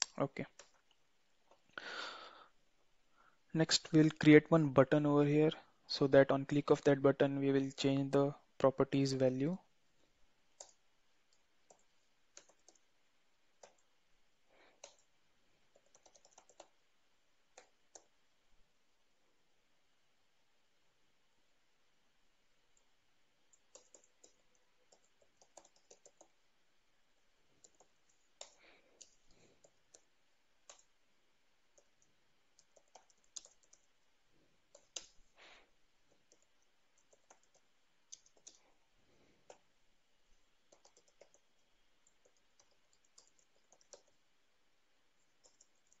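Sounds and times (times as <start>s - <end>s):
keyboard typing: 0.1s - 0.9s, 10.5s - 14.0s, 14.6s - 16.8s, 17.5s - 18.2s, 22.7s - 26.4s, 27.6s - 31.0s, 31.6s - 34.0s, 34.6s - 35.4s, 36.0s - 38.8s, 39.4s - 39.7s, 40.6s - 44.3s, 45.2s - 46.0s.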